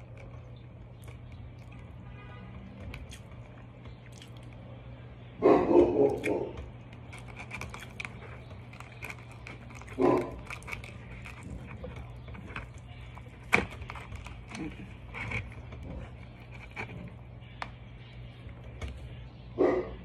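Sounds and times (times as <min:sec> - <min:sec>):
chewing and lip smacks: 0:00.0 - 0:02.0, 0:02.7 - 0:04.7, 0:06.0 - 0:17.0
container clicks and rustles: 0:06.9 - 0:17.2.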